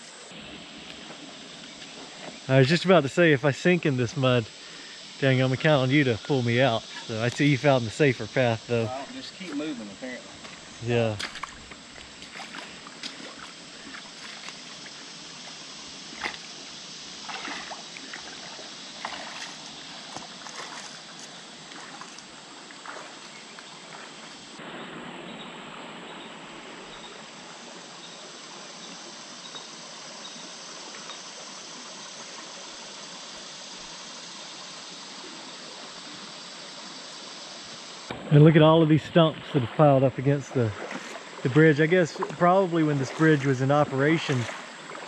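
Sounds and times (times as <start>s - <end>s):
creek water trickling: 0.0s - 45.0s
boots wading through mud: 9.4s - 15.1s, 16.1s - 16.5s, 17.2s - 24.1s, 40.7s - 41.4s, 44.3s - 45.0s.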